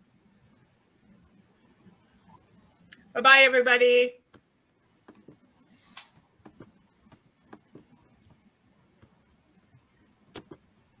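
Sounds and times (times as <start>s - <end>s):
faint clicks and light taps: 4.3s - 10.7s.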